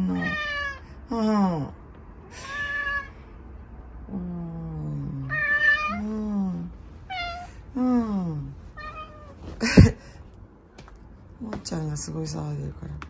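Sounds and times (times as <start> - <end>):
cat meowing loudly: 0.0 - 0.8, 2.4 - 3.1, 5.3 - 6.0.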